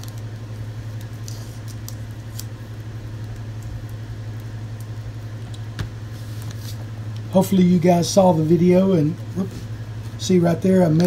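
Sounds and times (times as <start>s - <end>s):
masking tape ticks and crackles: 0.0s - 5.8s
steady low hum: 0.0s - 11.0s.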